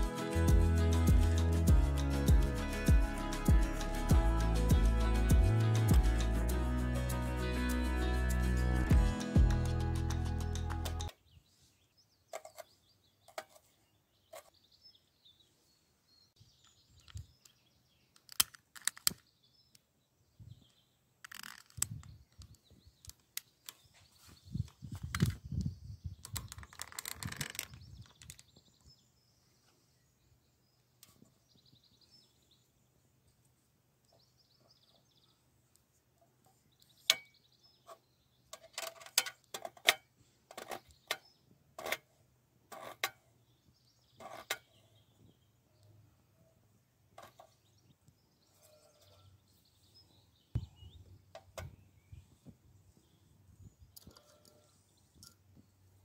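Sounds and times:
rustling noise: 0:21.2 - 0:28.6
faint bird chirps: 0:43.4 - 0:55.8.

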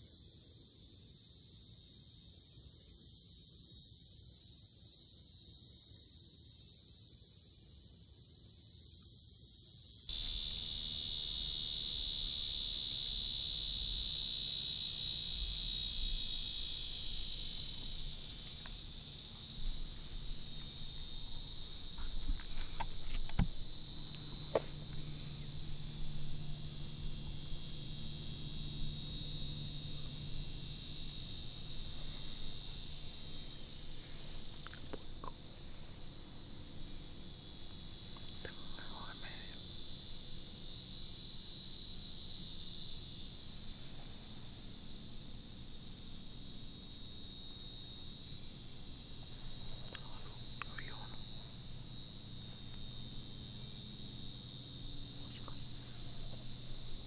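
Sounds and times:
insects chorus: 0:00.0 - 0:57.0
faint clicks: 0:20.5 - 0:25.0, 0:34.4 - 0:35.5.

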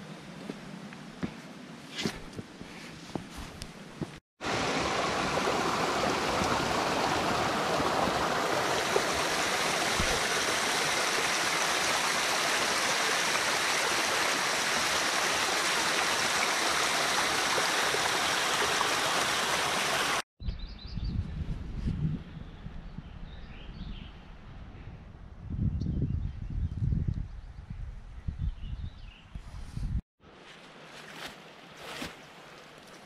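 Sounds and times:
stream rushing over rocks: 0:04.4 - 0:20.2.

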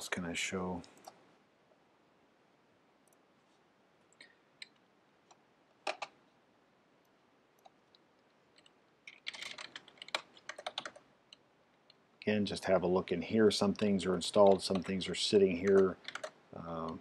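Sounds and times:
typing on a keyboard: 0:05.8 - 0:06.2, 0:08.6 - 0:11.1, 0:13.8 - 0:15.0, 0:15.6 - 0:17.0.

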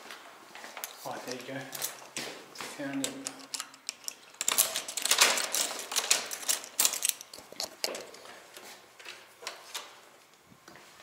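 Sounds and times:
door lock clicking and rattling: 0:03.0 - 0:08.2.

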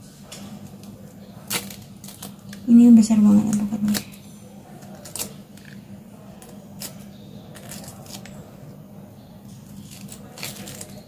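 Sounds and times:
knife scraping avocado skin: 0:00.8 - 0:02.6, 0:04.8 - 0:05.8, 0:06.4 - 0:08.4, 0:09.6 - 0:11.0.

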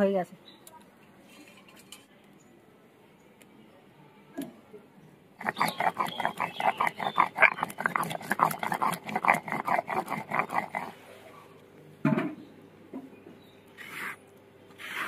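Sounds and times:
stone roller scraping on slab: 0:05.4 - 0:10.9, 0:14.8 - 0:15.0.

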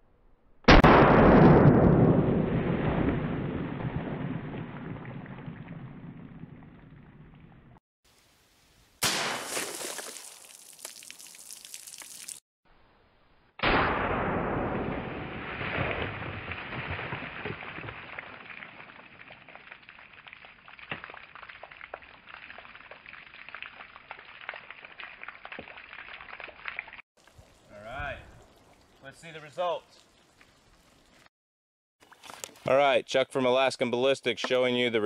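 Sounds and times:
bullet bursting water jugs: 0:09.0 - 0:12.4, 0:13.6 - 0:26.6
water splashing and dripping: 0:09.2 - 0:12.4, 0:15.4 - 0:31.3, 0:32.0 - 0:32.7
water spraying: 0:09.4 - 0:12.4.

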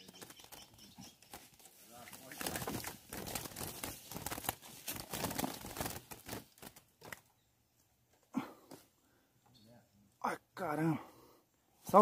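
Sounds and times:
bird flapping against cage bars: 0:00.0 - 0:07.2.

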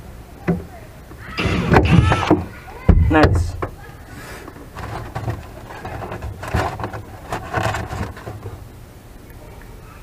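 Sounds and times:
tools scraping and knocking on wood: 0:04.4 - 0:08.6.

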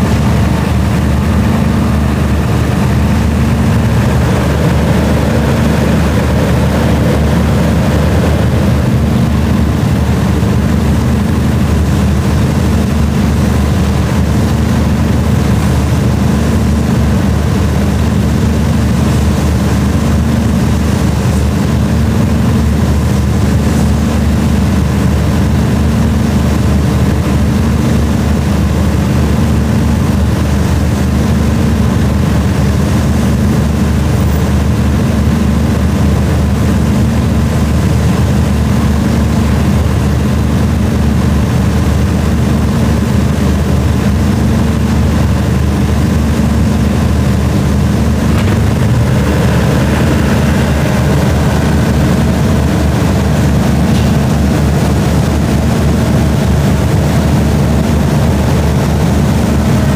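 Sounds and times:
diesel engine idling: 0:00.0 - 0:27.5, 0:29.5 - 0:59.9.

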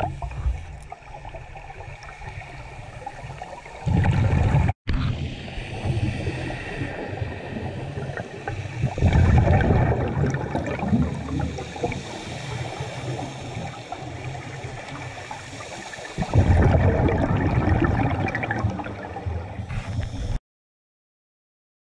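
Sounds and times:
muffled underwater rush: 0:00.0 - 0:20.3
bubbles gurgling underwater: 0:03.1 - 0:04.8, 0:07.2 - 0:12.1, 0:16.2 - 0:19.6.

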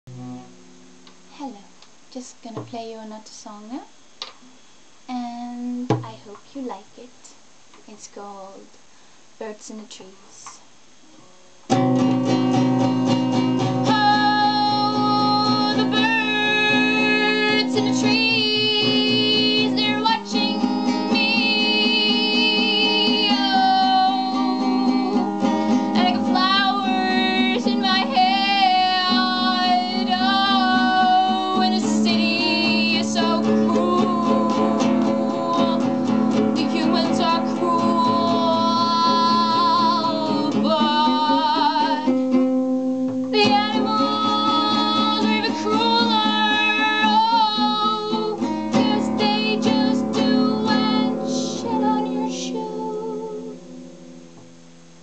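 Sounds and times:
acoustic guitar strumming: 0:00.1 - 0:01.5, 0:11.6 - 0:55.0
woman singing: 0:05.1 - 0:07.1, 0:13.3 - 0:42.6, 0:43.3 - 0:53.6.

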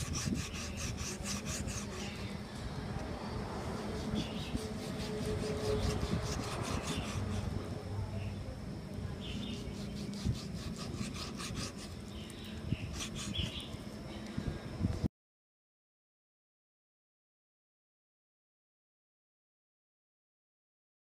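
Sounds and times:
knife slicing meat on a board: 0:00.0 - 0:02.3, 0:03.8 - 0:07.6, 0:09.4 - 0:12.0, 0:12.9 - 0:13.7.

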